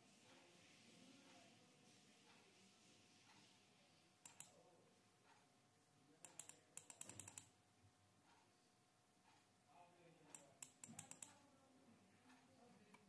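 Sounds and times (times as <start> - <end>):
computer mouse clicks: 4.2 - 4.6, 6.2 - 7.5, 10.3 - 11.4.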